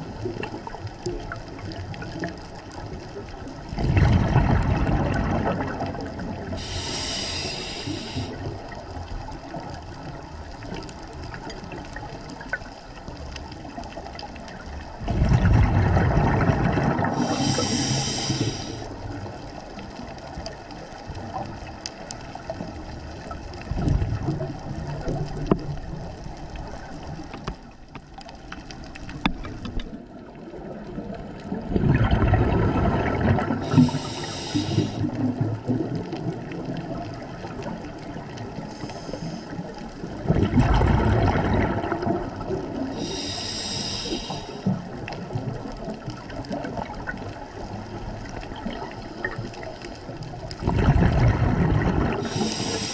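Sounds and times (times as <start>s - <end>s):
exhaled bubbles gurgling: 0.0s - 52.9s
regulator hiss on inhalation: 6.5s - 8.5s, 17.1s - 18.9s, 33.6s - 35.1s, 38.7s - 39.6s, 42.9s - 44.7s, 52.2s - 52.9s.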